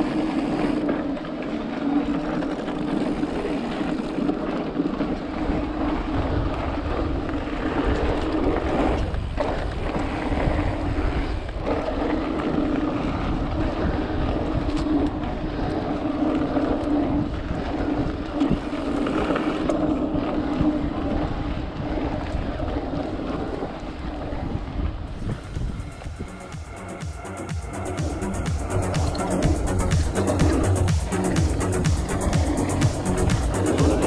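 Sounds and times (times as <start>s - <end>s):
tyres rumbling over dirt: 0.0s - 34.0s
wind buffeting microphone: 0.0s - 34.0s
electric motor hum: 25.2s - 34.0s.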